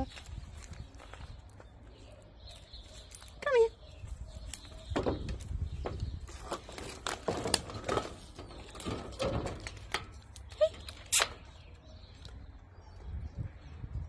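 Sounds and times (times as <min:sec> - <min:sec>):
footsteps in dry grass: 0:00.0 - 0:02.0.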